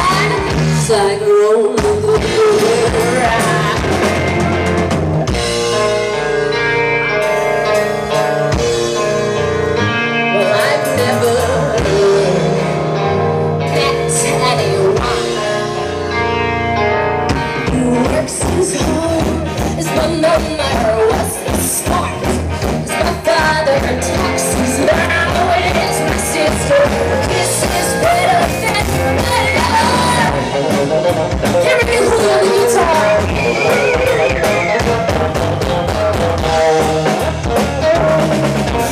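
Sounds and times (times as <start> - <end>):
female lead singer: 0.0 - 4.7, 9.8 - 16.6, 17.3 - 34.2
bass guitar: 0.0 - 38.9
electric guitar: 0.0 - 38.9.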